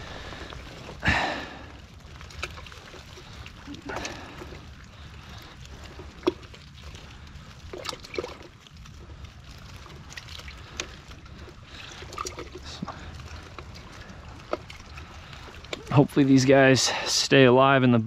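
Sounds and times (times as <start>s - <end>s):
low steady background noise: 0.0s - 18.0s
clicks and rustles of net mesh: 1.7s - 16.3s.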